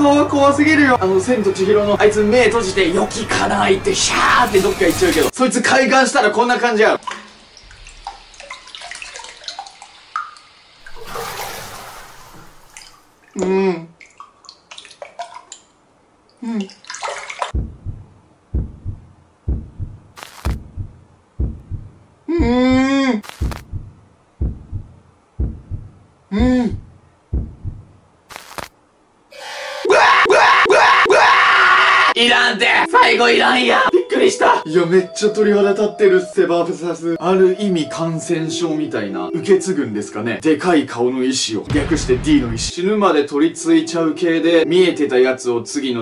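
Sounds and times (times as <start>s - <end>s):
bathwater splashing: 7.0s - 13.4s, 14.0s - 15.7s, 16.6s - 17.7s
water drips: 7.0s - 17.6s
heartbeat double thump: 17.6s - 28.0s
harsh jumpscare blast: 41.7s - 42.7s.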